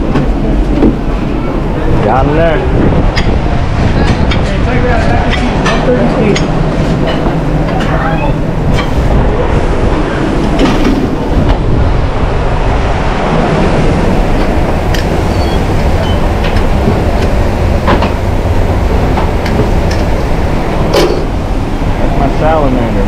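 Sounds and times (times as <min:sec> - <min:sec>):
low rumbling kitchen din: 0:00.0 - 0:12.0.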